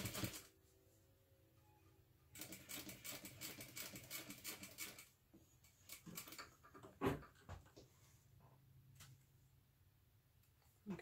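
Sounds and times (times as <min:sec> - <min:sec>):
sewing machine stitching: 0:00.0 - 0:00.5, 0:02.3 - 0:05.1.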